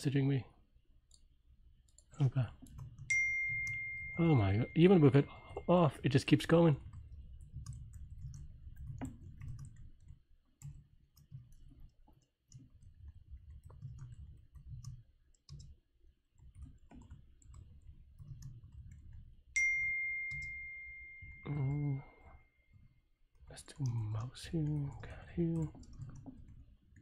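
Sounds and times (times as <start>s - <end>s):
keyboard typing: 1.1s - 27.0s
notification chime: 3.1s - 5.2s.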